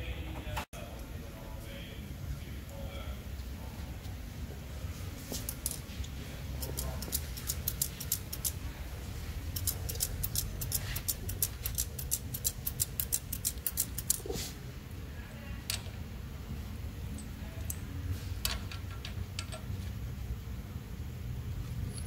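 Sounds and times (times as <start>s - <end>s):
steady low hum: 0.0s - 22.0s.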